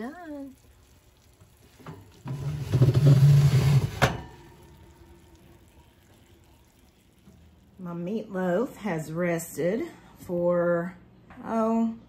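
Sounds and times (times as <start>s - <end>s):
oven rack sliding on metal rails: 2.3s - 4.3s.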